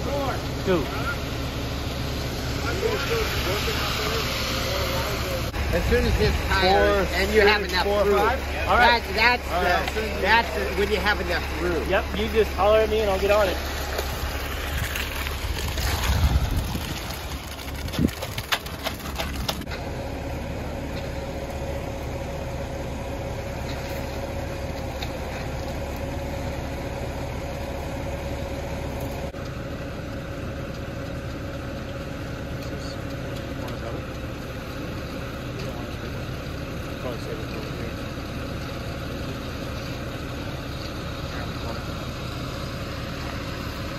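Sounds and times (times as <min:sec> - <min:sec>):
diesel engine running: 0:00.0 - 0:43.9
concrete discharging down chute: 0:02.4 - 0:19.8.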